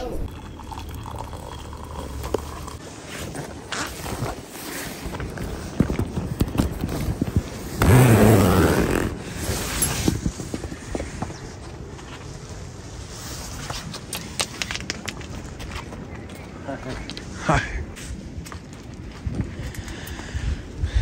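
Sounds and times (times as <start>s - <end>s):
tent fabric rustling: 2.8s - 10.5s
tent zipper pulled open: 3.0s - 5.1s, 6.9s - 10.4s.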